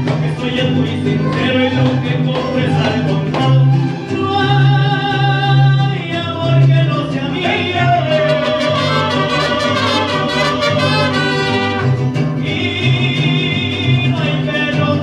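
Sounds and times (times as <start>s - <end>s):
mariachi band playing and singing: 0.0s - 15.0s
trumpets: 8.2s - 12.1s.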